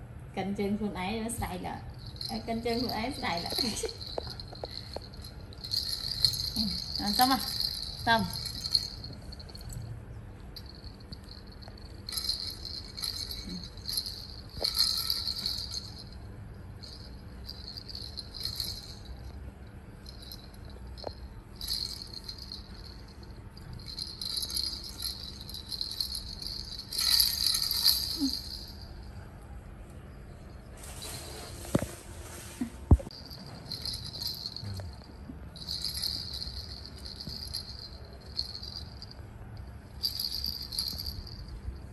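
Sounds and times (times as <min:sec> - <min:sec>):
baby rattle jingling: 0:01.9 - 0:09.8, 0:10.6 - 0:16.2, 0:16.8 - 0:19.3, 0:20.0 - 0:28.9, 0:33.1 - 0:39.2, 0:40.0 - 0:41.6.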